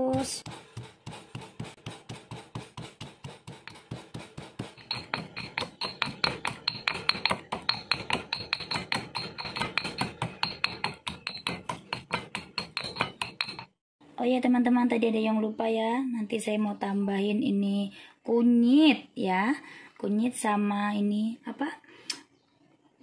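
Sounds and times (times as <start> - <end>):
stone pestle pounding in mortar: 0.0 - 13.7.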